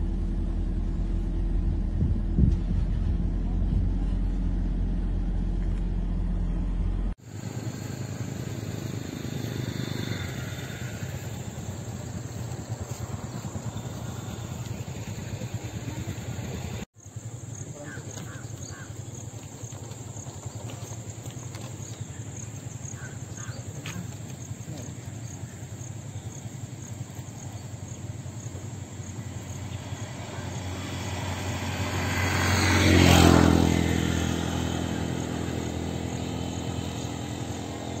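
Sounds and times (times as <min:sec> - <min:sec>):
engine running at low rumble: 0:00.0 - 0:38.0
vehicle passing by: 0:00.7 - 0:38.0.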